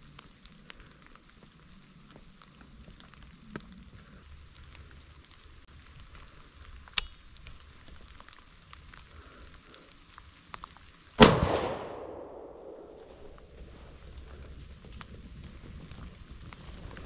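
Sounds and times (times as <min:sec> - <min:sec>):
rifle shot: 0:11.2 - 0:13.0.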